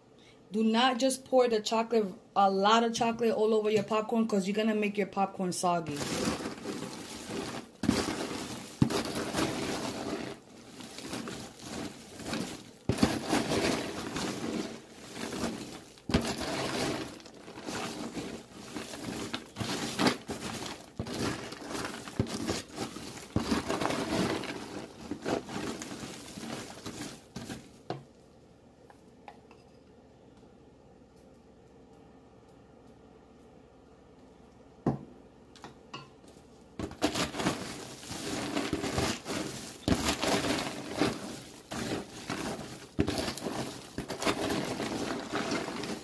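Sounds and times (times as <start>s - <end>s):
popcorn rustling and crunching: 5.5s - 28.2s, 36.2s - 46.0s.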